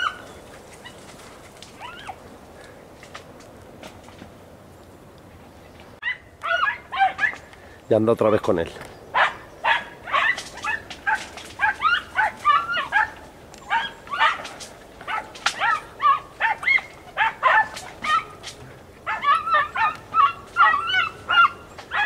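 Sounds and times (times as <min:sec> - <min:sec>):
dogs yelping: 0:00.0 - 0:02.3, 0:06.0 - 0:07.5, 0:09.1 - 0:22.0.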